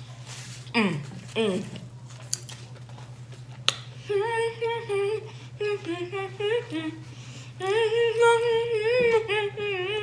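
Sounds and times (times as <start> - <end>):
low background hum: 0.0 - 10.0
woman humming: 0.7 - 1.9, 7.6 - 10.0.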